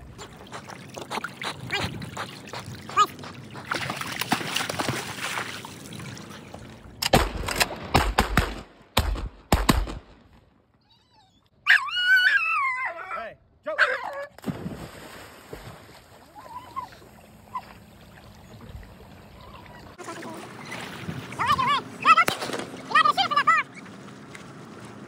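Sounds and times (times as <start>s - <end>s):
water sloshing and splashing: 0.0s - 7.8s, 14.4s - 25.0s
sharp bangs: 7.0s - 10.2s
dog whining: 10.8s - 12.9s, 16.4s - 17.8s.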